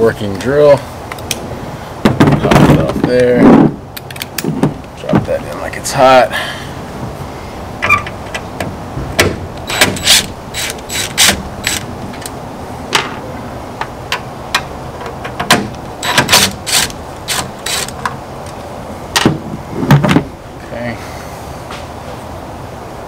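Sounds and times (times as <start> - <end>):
cordless drill whirring: 16.0 - 17.9.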